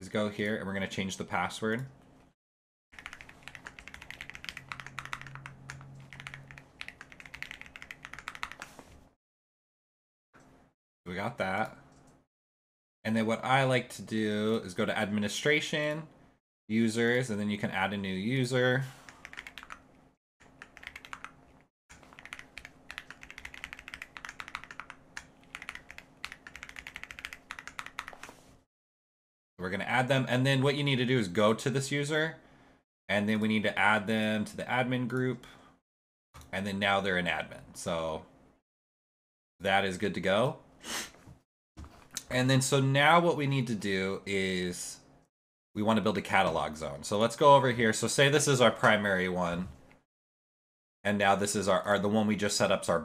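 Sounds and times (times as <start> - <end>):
computer keyboard typing: 3.0 - 8.8, 19.1 - 19.8, 20.4 - 28.4.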